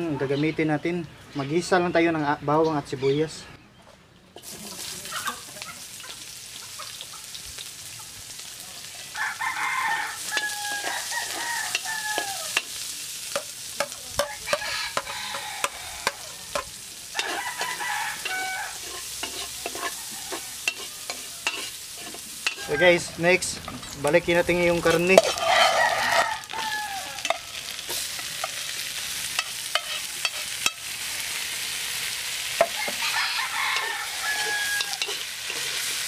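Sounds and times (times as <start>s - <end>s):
onion sizzling in hot fat: 4.4s - 36.0s
rooster crowing: 9.0s - 12.7s, 14.2s - 19.0s, 19.6s - 21.8s, 22.4s - 23.2s, 25.2s - 27.6s, 32.6s - 35.8s
metal spatula scraping a wok: 10.2s - 22.8s, 24.8s - 26.4s, 27.2s - 31.0s, 32.0s - 36.0s.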